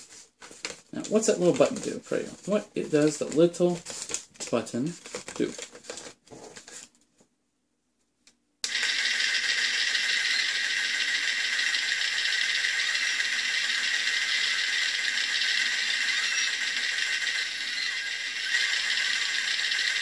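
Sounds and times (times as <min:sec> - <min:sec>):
toy speaker playing movie sound clip: 0:08.6 - 0:20.0.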